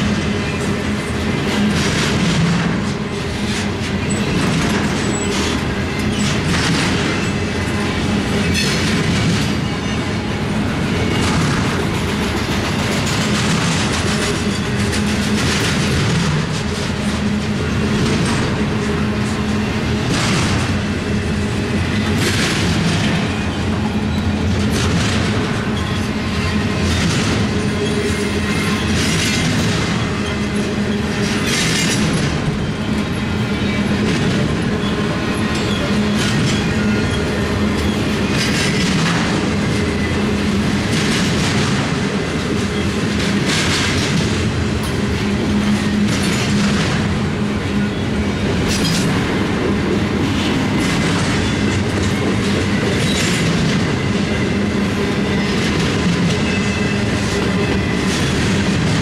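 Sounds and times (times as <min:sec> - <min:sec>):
clickety-clack over rail joints: 0:00.0 - 0:59.0
steel wheels rumbling on rail: 0:00.0 - 0:59.0.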